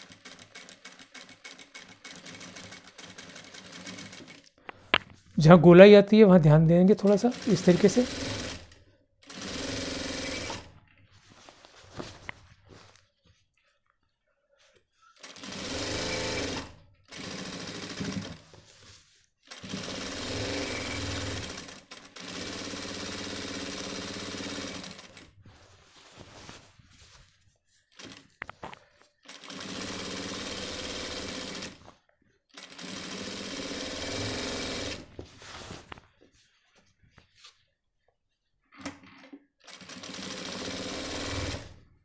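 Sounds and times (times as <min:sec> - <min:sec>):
sewing machine stitching: 0:00.0 - 0:04.4, 0:07.0 - 0:10.7, 0:15.2 - 0:18.5, 0:19.5 - 0:25.3, 0:29.3 - 0:31.8, 0:32.6 - 0:35.1, 0:38.8 - 0:41.8.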